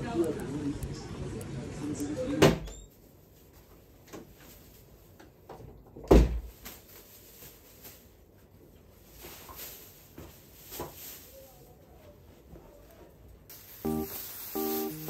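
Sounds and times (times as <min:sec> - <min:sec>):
faint clicks and rustles: 0:02.9 - 0:05.9.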